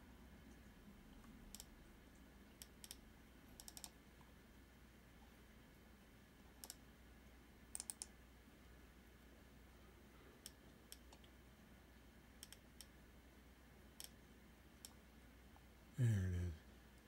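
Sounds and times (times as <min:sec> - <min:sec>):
computer mouse and key clicks: 0:01.2 - 0:01.7, 0:02.6 - 0:03.0, 0:03.6 - 0:04.3, 0:06.5 - 0:06.8, 0:07.7 - 0:08.2, 0:10.4 - 0:11.4, 0:12.4 - 0:13.0, 0:14.0 - 0:14.2, 0:14.8 - 0:15.0.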